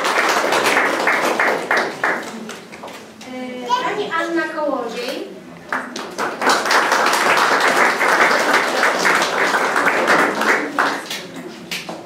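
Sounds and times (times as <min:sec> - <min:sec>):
crowd applauding: 0:00.0 - 0:02.6, 0:05.7 - 0:11.4.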